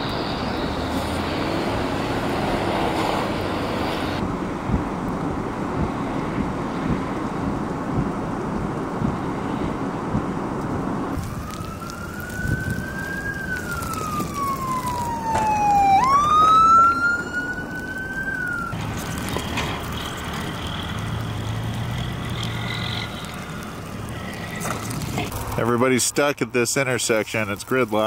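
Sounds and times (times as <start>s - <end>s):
wind rumbling on microphone: 0.0s - 25.7s
emergency vehicle siren wailing: 11.1s - 25.4s.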